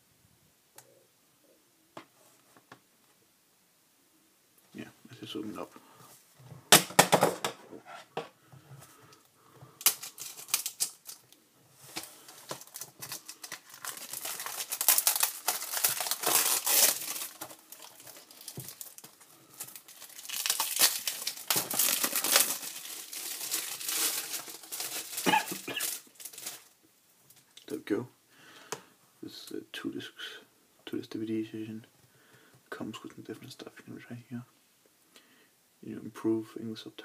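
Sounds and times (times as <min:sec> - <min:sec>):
plastic wrap tearing and crinkling: 0:09.8 - 0:26.8.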